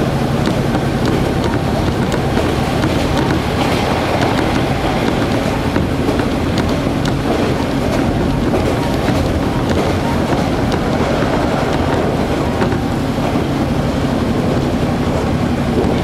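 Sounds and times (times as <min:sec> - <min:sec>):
diesel engine drone: 0:00.0 - 0:16.0
wheels rumbling on rail: 0:00.0 - 0:16.0
faint clicks over track: 0:00.4 - 0:13.5.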